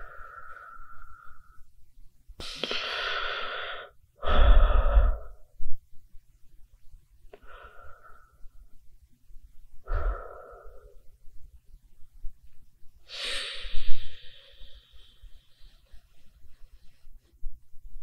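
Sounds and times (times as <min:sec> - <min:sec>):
person breathing close up: 0:00.0 - 0:01.8, 0:02.4 - 0:05.8, 0:07.3 - 0:08.8, 0:09.7 - 0:11.3, 0:13.0 - 0:17.0.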